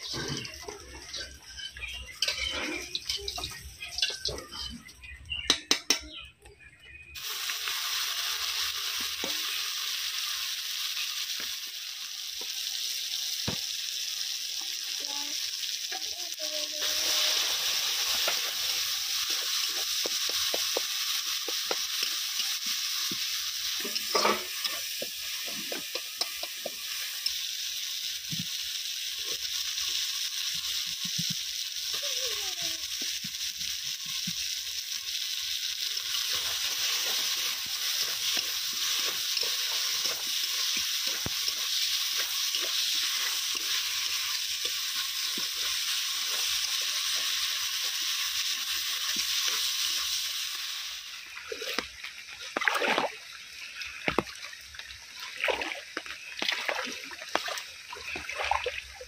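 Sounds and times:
utensils clattering: 0.0 - 4.8, 23.8 - 26.7
spatula scraping a pan: 0.0 - 4.9, 23.1 - 27.1
food sizzling in a pan: 0.0 - 59.0.

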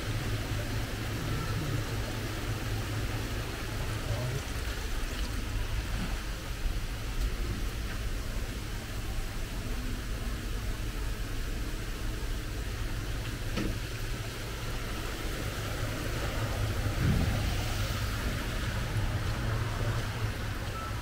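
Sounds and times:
engine running with low rumble: 0.0 - 21.0.

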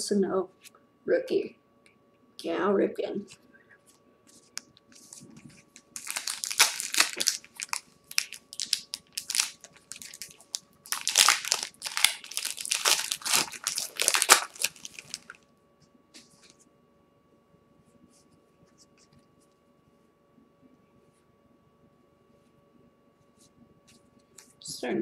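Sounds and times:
card pack wrapper crinkling: 4.9 - 15.4.

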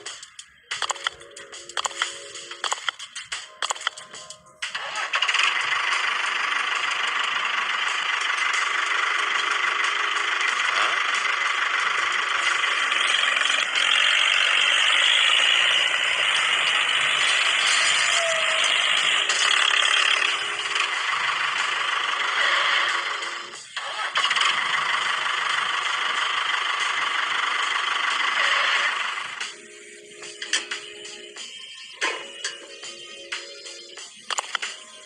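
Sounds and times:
toy motor rattling whir: 4.7 - 29.4.

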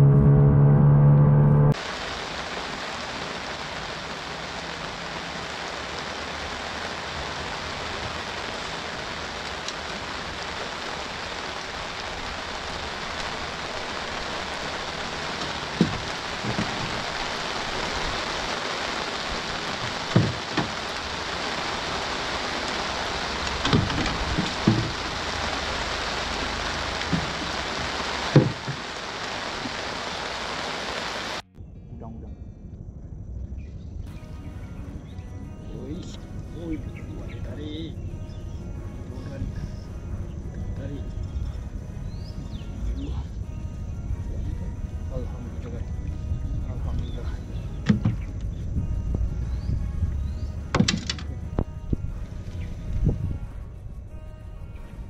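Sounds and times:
heavy rain on water: 1.7 - 31.4, 46.6 - 49.2, 50.7 - 51.3
rain on an umbrella: 1.7 - 31.4, 47.9 - 48.5, 50.1 - 51.3.

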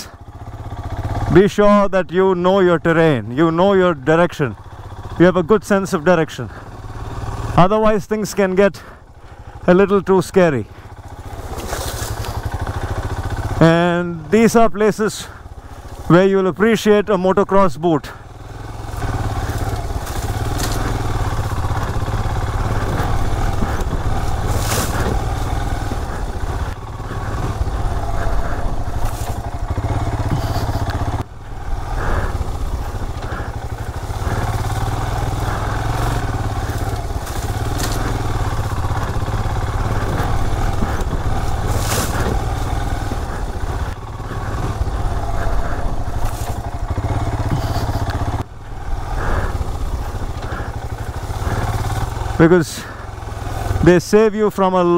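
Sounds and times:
motorcycle engine running: 0.0 - 54.9.

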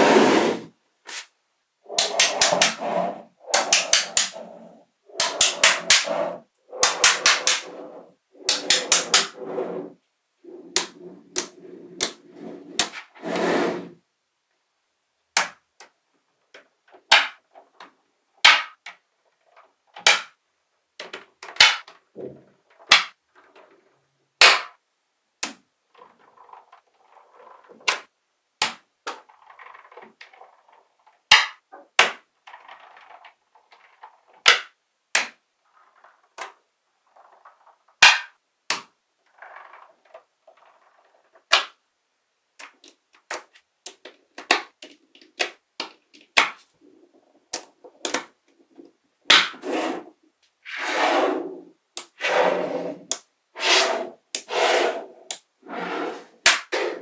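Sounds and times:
balls rattling and rolling: 0.0 - 57.0
magnetic balls snapping together: 1.9 - 2.8, 3.4 - 4.4, 5.1 - 7.8, 25.4 - 25.6, 27.8 - 29.3, 34.4 - 35.4, 38.0 - 39.0, 47.5 - 49.6.

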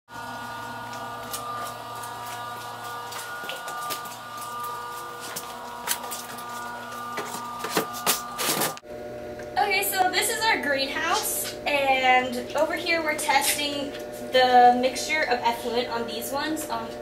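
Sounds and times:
steady hum of held tones: 0.1 - 17.0.

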